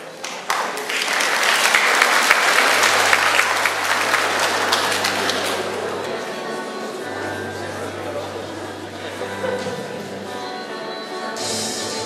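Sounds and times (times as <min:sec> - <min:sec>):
crowd clapping: 0:00.0 - 0:06.1.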